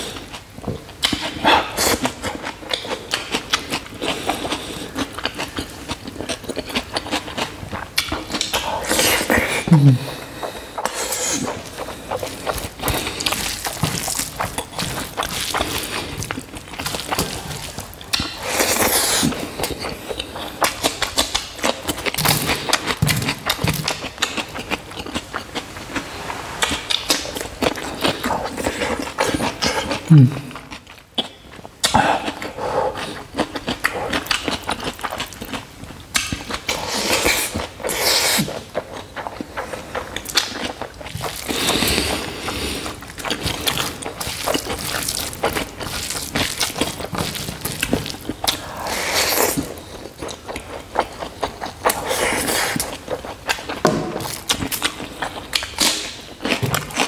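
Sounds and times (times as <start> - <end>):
wet chewing and lip smacking: 0.2 - 57.0
low grunt: 9.7 - 10.2, 30.1 - 30.6.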